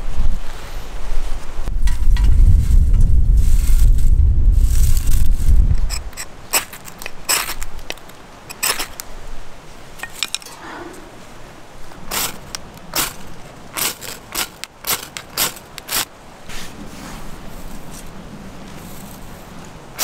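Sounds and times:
clinks of small hard objects: 0:10.0 - 0:10.6.

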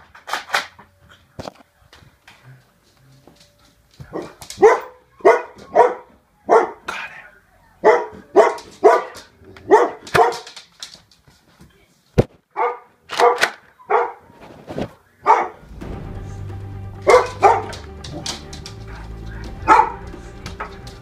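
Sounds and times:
dog barking: 0:04.0 - 0:07.0, 0:07.8 - 0:10.6, 0:12.5 - 0:14.4, 0:15.2 - 0:15.6, 0:17.1 - 0:20.1
steady low hum: 0:15.6 - 0:21.0.

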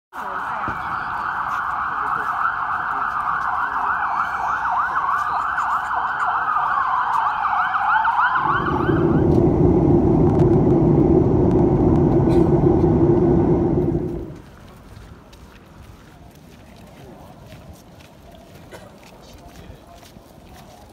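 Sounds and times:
emergency vehicle sirens: 0:00.2 - 0:14.4
jet engine rumble in airliner cabin: 0:08.4 - 0:14.4.

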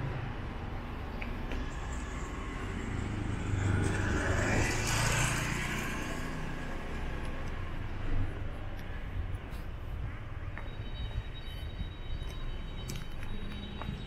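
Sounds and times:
vehicle passing: 0:00.3 - 0:08.5.

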